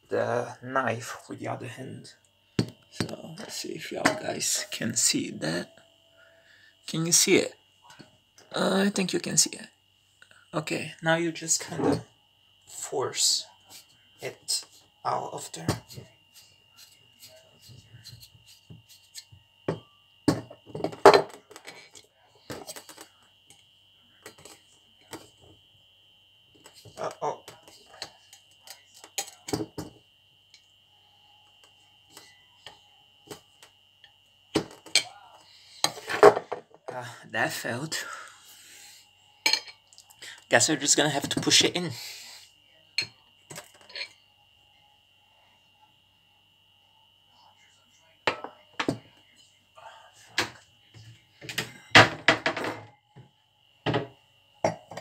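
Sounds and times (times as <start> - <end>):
faint high whine: 0.0 - 55.0
glassware knocking on counter: 52.0 - 52.9, 53.9 - 54.1.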